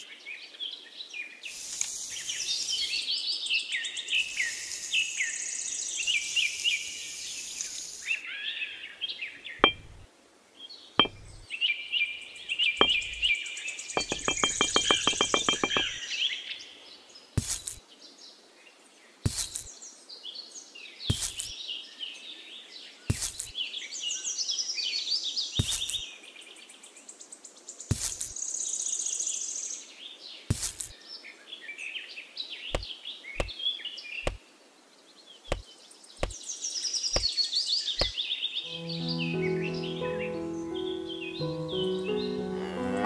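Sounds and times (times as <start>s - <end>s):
birds chirping: 1.5s - 10.1s, 10.7s - 16.5s, 35.2s - 43.0s
small pieces tapping on sand: 17.4s - 17.8s, 19.3s - 19.7s, 21.1s - 21.5s, 23.1s - 23.5s, 25.6s - 26.0s, 27.9s - 28.4s, 30.5s - 30.9s.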